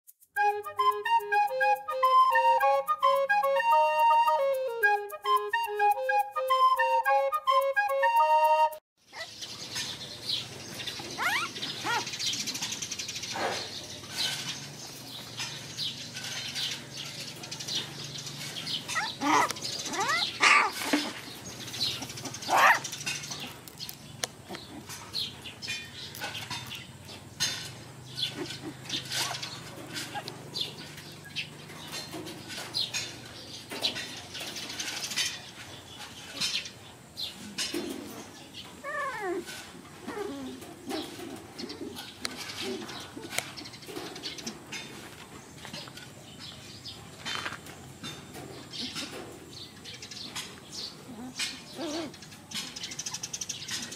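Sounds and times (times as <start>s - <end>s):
puppies whimpering and squeaking: 9.1s - 10.0s, 10.8s - 26.8s, 27.4s - 36.7s, 37.6s - 44.5s, 48.6s - 49.5s, 50.3s - 53.9s.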